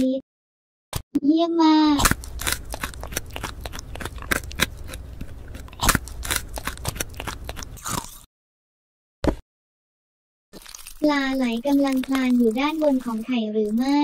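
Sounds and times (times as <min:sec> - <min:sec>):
raw salad crunching: 0:02.0 - 0:08.2, 0:10.6 - 0:14.0.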